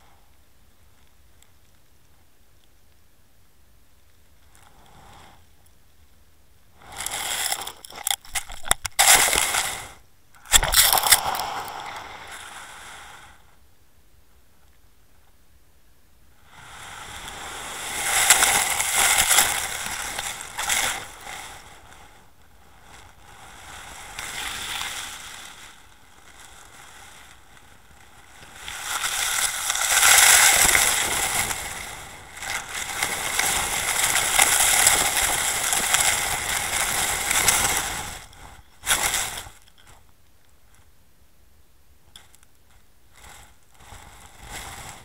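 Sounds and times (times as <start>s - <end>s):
scraping across gravelly seabed: 6.8s - 13.1s, 17.0s - 22.1s, 28.3s - 40.0s, 43.2s - 45.0s.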